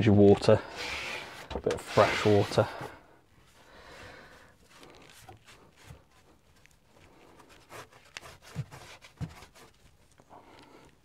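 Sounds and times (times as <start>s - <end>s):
sponge rubbing on tiles: 0.6s - 3.0s, 3.8s - 9.8s.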